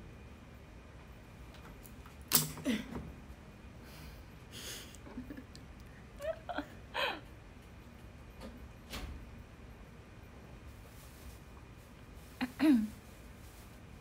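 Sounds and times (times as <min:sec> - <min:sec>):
woman laughing breathily: 0:04.5 - 0:07.3
soft giggles: 0:04.8 - 0:07.3.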